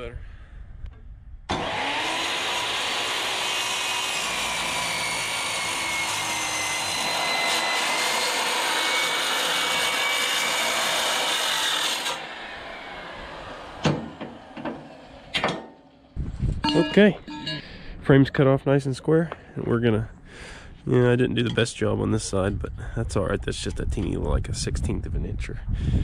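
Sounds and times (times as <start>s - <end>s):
circular saw cutting steel: 1.5s - 17.6s.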